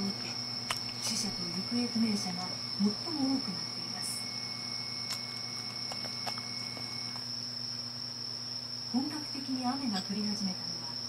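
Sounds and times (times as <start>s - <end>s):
person's voice: 1.0s - 4.2s.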